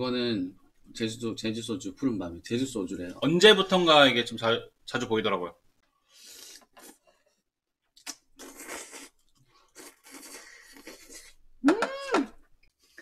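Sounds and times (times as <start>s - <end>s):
noodles slurped: 8.1s - 11.4s.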